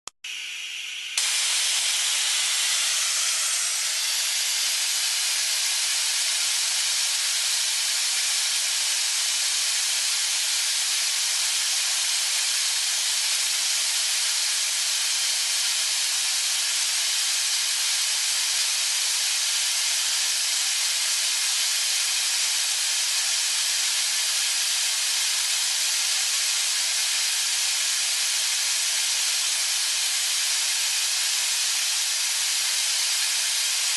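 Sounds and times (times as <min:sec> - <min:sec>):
compressed air hissing: 0:01.1 - 0:09.6.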